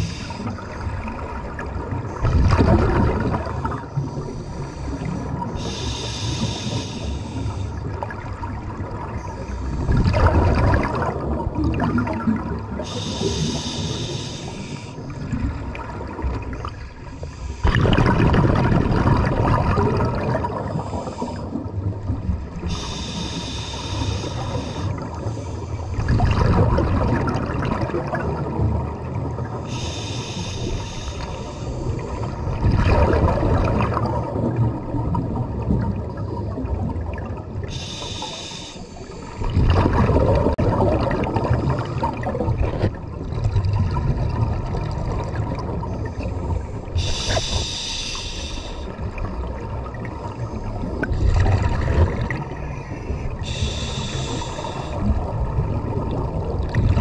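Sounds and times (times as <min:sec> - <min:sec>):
hissing regulator inhale: 0:00.0 - 0:00.6, 0:04.2 - 0:07.8, 0:12.8 - 0:15.1, 0:22.6 - 0:25.9, 0:29.7 - 0:32.0, 0:37.7 - 0:39.5, 0:46.9 - 0:49.0, 0:53.4 - 0:55.1
burst of exhaled bubbles: 0:02.2 - 0:03.8, 0:09.9 - 0:13.5, 0:17.6 - 0:21.2, 0:26.0 - 0:28.4, 0:32.6 - 0:37.2, 0:39.4 - 0:45.7.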